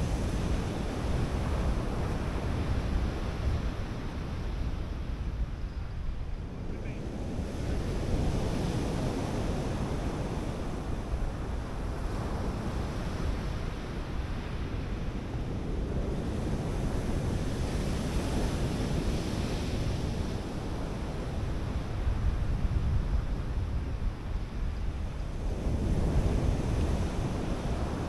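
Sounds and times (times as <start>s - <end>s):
surf breaking on a beach: 6.8s - 28.0s.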